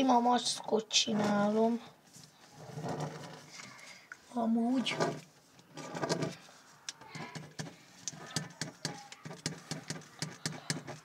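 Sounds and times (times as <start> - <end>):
pen scratching on paper: 8.2 - 11.0.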